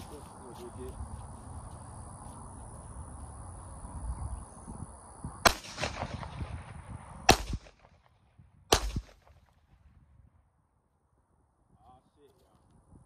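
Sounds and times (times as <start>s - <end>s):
pistol shots with echo: 5.4s - 9.5s.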